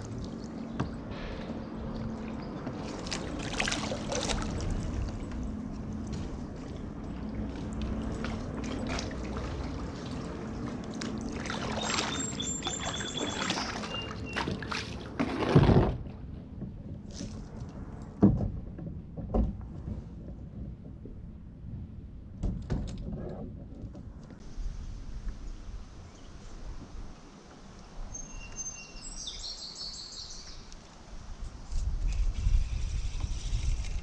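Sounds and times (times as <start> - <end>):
water dripping from paddle: 0.0 - 15.0
paddle splashing in water: 0.0 - 20.9.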